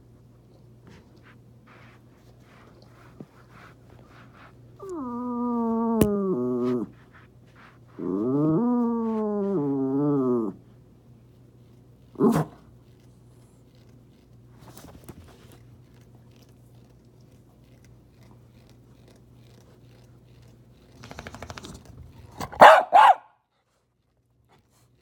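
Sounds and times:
dog barking: 12.2s - 12.6s, 22.4s - 23.4s.

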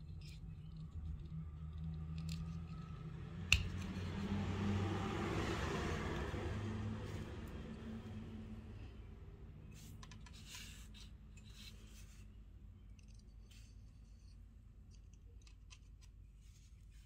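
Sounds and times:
low background hum: 0.0s - 17.0s
clicks of objects being handled: 1.8s - 4.3s.

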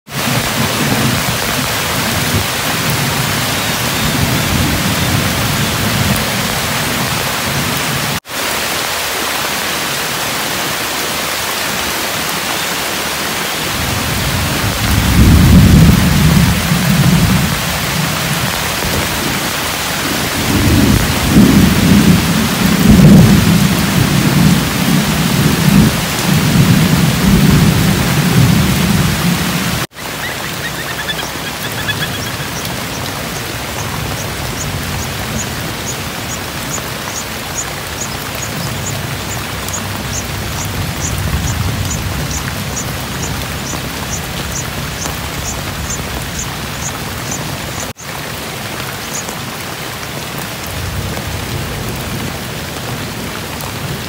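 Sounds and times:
heavy rain pouring: 0.1s - 54.0s
thunder rolling: 13.7s - 29.9s.

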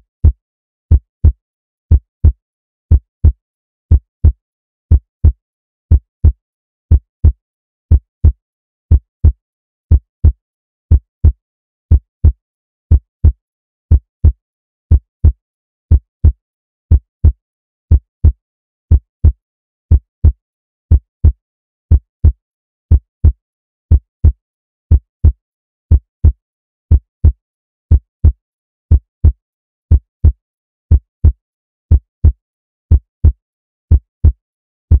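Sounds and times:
heartbeat thumps: 26.9s - 35.0s.

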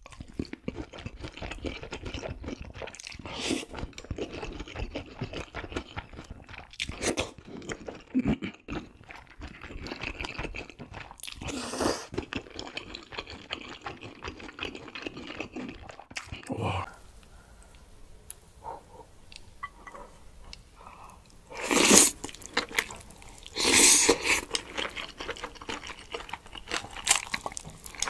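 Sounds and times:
chewing: 0.0s - 16.5s, 18.6s - 28.0s
noodles slurping: 21.5s - 28.0s.

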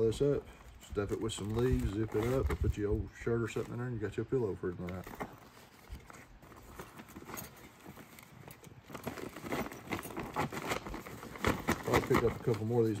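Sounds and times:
survival blanket rustling and crinkling: 0.0s - 13.0s.

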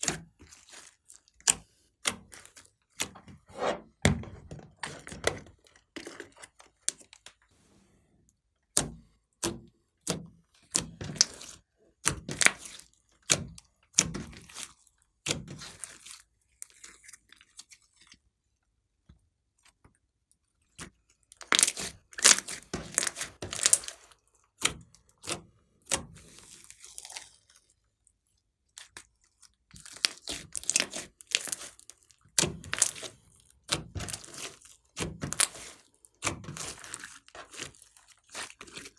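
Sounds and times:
slime being kneaded by hand: 0.0s - 3.7s, 8.7s - 18.2s, 20.6s - 27.7s, 28.4s - 38.9s.

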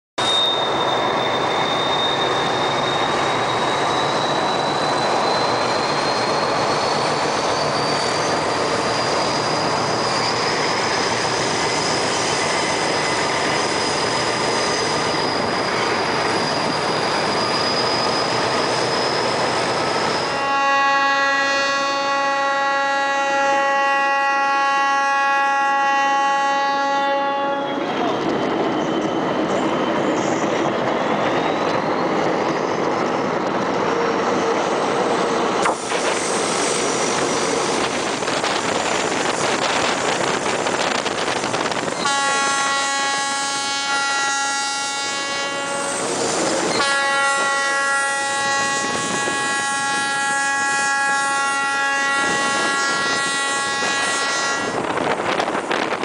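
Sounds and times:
train wheels on rails: 0.2s - 56.0s
locomotive horn blasts: 20.3s - 27.9s, 42.0s - 46.0s, 46.8s - 54.8s.

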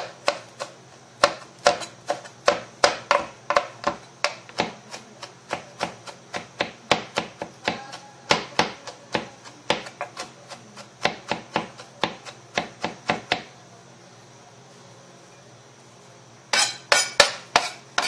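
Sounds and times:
knife chopping on plastic board: 0.0s - 13.5s, 16.6s - 18.0s.

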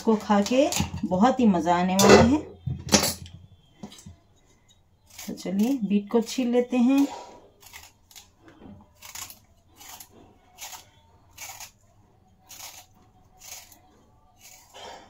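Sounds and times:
peeler scraping beetroot skin: 5.0s - 15.0s.

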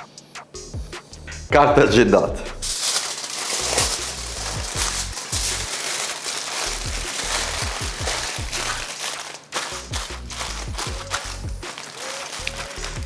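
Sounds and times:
background music with bass line: 0.0s - 2.8s, 3.6s - 5.7s, 6.7s - 8.9s, 9.7s - 11.8s, 12.4s - 13.0s
aluminium foil crinkling: 2.6s - 13.0s.

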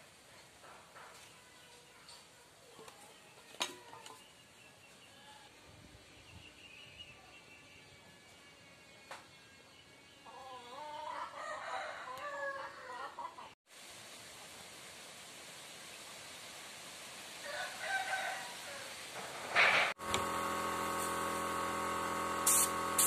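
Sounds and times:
rooster crowing: 10.3s - 13.2s, 17.4s - 19.0s
steady background hiss: 13.7s - 19.9s.

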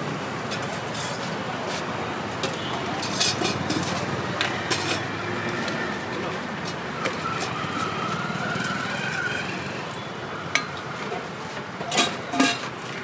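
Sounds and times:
roadside traffic: 0.0s - 13.0s
steel utensils clinking: 3.0s - 5.1s, 11.9s - 12.8s.

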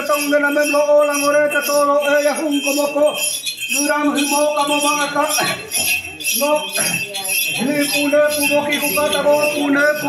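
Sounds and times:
small bells jingling: 0.0s - 10.0s
group chanting a prayer: 6.8s - 10.0s.

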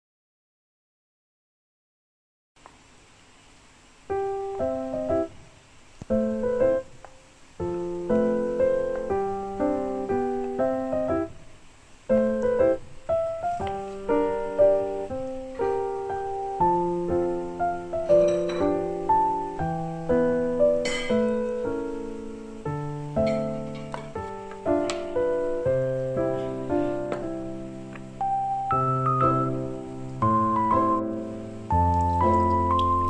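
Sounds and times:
piano music: 4.1s - 5.4s, 6.1s - 33.0s.

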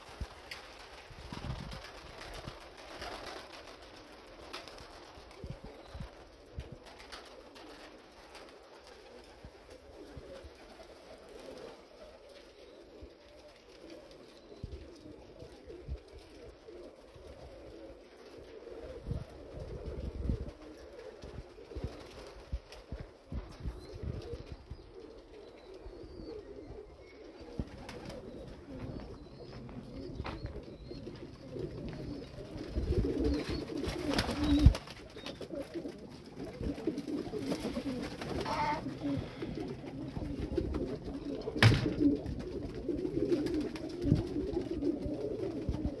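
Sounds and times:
pigeons cooing: 0.0s - 46.0s.

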